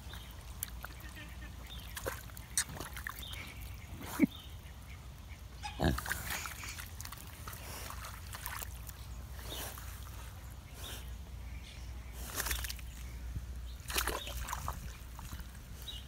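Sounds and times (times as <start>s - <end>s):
pig grunting: 5.6s - 6.6s.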